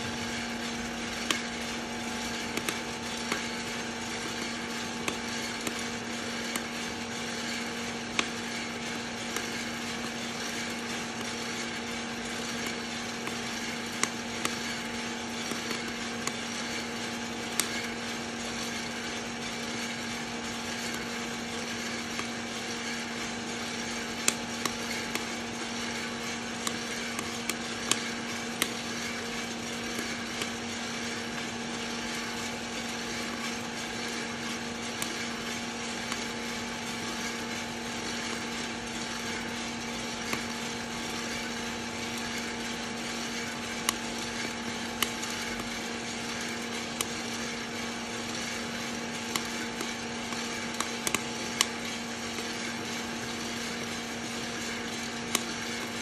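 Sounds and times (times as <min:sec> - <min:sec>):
coffee roaster motor and fan hum: 0:00.0 - 0:56.0
coffee beans cracking: 0:20.7 - 0:56.0.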